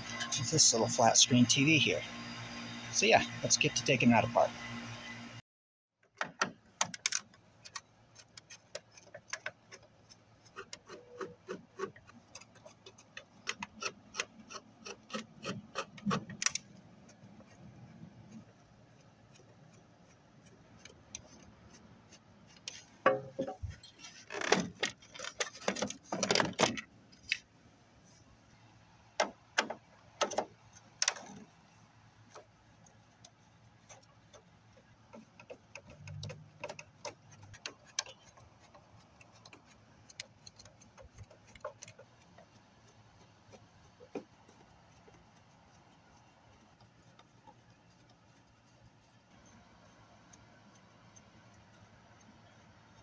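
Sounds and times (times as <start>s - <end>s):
screwdriver clicking on plastic: 6.2s - 17.6s, 29.2s - 31.4s, 32.3s - 53.0s.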